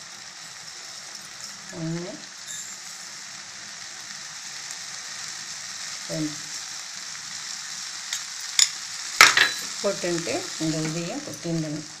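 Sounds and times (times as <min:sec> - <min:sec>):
food sizzling in a pan: 0:00.0 - 0:12.0.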